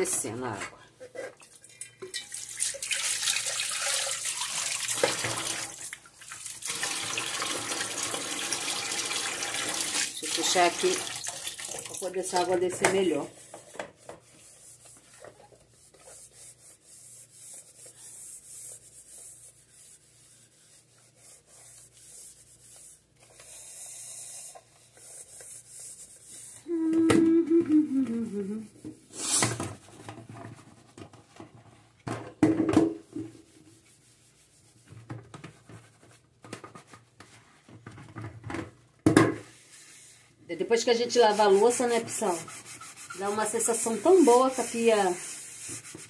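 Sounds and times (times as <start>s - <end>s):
sponge scrubbing metal pot: 10.1s - 11.2s, 39.6s - 46.0s.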